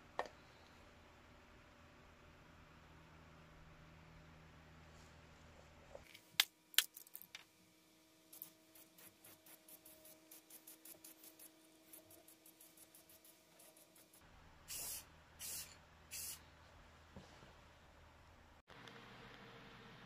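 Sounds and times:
aerosol spray can hissing: 8.4 - 16.4.

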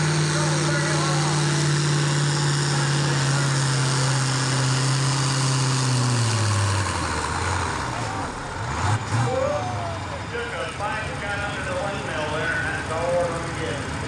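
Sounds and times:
tractor engine running under load: 0.0 - 14.0.

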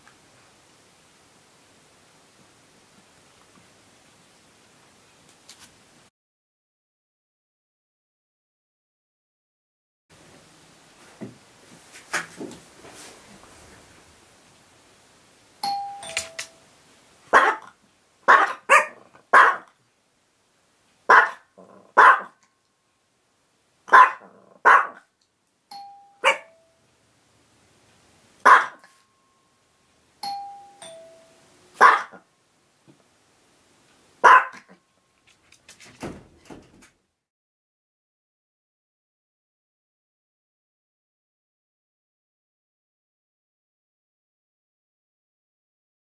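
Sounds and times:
two-tone door chime: 15.6 - 16.8, 25.7 - 26.9, 29.0 - 31.6
small dogs barking: 17.3 - 19.8, 21.1 - 22.4, 23.9 - 25.1, 26.2 - 26.6, 28.4 - 29.0, 31.8 - 32.3, 34.2 - 34.8.

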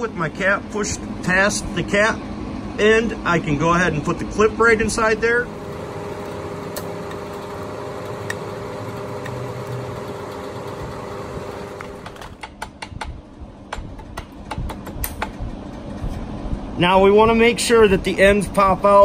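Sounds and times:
steady machine hum: 0.0 - 12.4.

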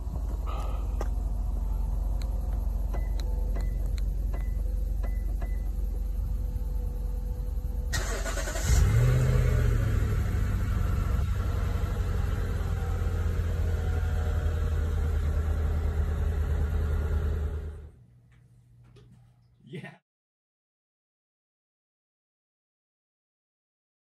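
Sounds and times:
car engine starting and idling: 0.0 - 18.0.

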